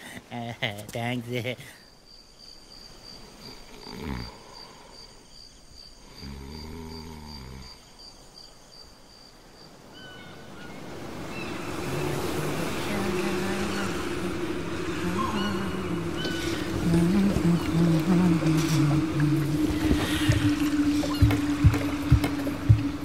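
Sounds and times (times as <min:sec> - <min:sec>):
crickets chirping: 0:00.0 - 0:23.0
woman snoring: 0:03.7 - 0:05.1, 0:06.0 - 0:07.8.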